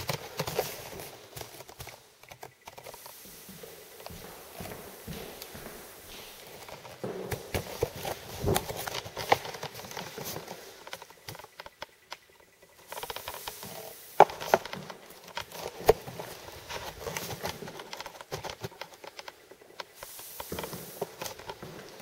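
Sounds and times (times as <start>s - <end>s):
floor applicator scuffing on wood: 2.8s - 11.5s, 19.8s - 22.0s.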